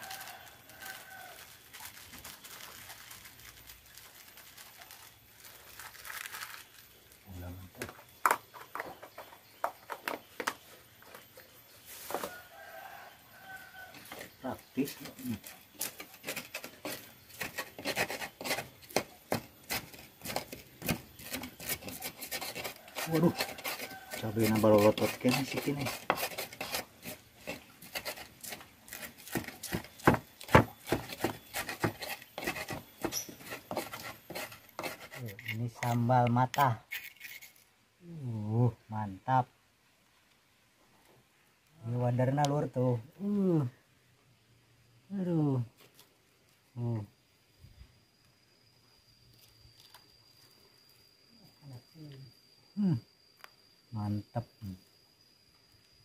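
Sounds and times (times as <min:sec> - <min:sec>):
plastic bag rustling: 0:00.0 - 0:07.2
pestle grinding in stone mortar: 0:14.9 - 0:37.6.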